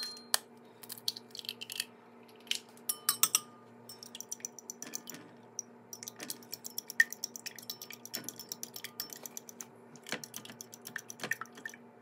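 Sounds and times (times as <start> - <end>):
fork beating eggs in glass bowl: 3.1 - 5.2, 5.9 - 11.7.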